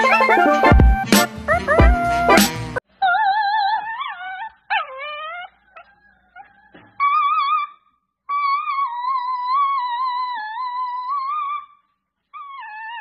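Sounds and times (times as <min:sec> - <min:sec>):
dog howling: 0:01.5 - 0:02.4, 0:03.0 - 0:11.8, 0:12.4 - 0:13.0
woman howling: 0:01.6 - 0:02.4.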